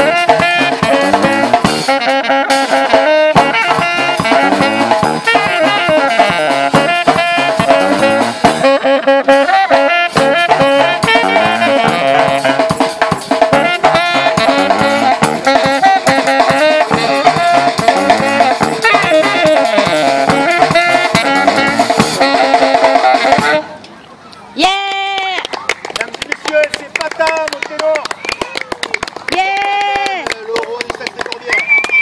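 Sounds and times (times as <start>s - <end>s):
drum kit drumming: 0.0s - 23.7s
saxophones playing melody: 0.0s - 23.9s.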